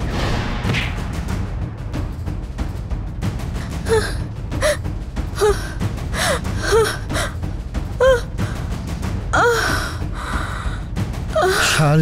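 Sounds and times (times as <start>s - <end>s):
woman crying out in pain: 3.6s - 7.4s, 8.0s - 8.4s.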